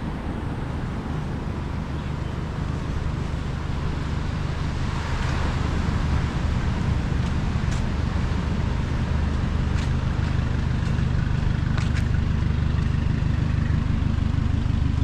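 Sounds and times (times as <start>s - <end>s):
road traffic: 0.0s - 15.0s.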